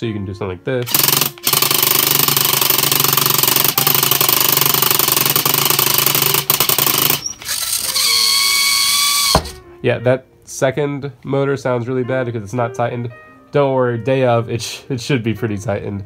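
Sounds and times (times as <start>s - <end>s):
motor grinding rattle: 0.9s - 9.6s.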